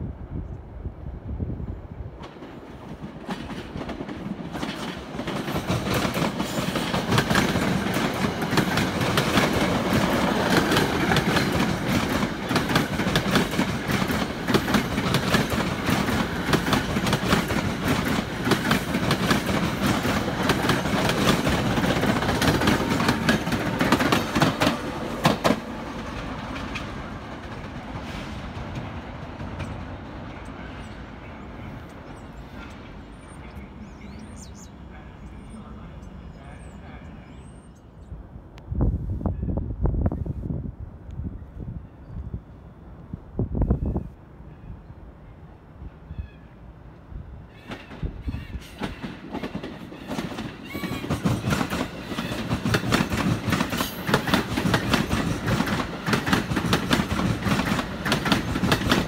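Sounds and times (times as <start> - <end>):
train wheels clicking over rail joints: 2.2 - 30.8, 47.6 - 59.0.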